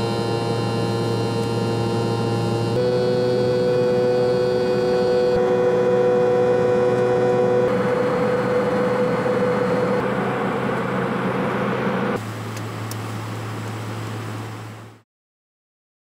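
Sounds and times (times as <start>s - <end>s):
airliner cabin engine drone: 0.0s - 15.0s.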